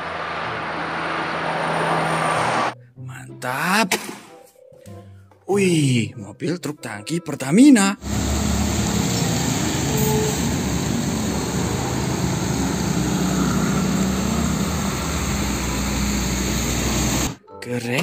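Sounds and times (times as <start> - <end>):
heavy truck driving on wet road: 0.0 - 2.8, 8.0 - 17.4
motorbikes driving: 8.0 - 17.4.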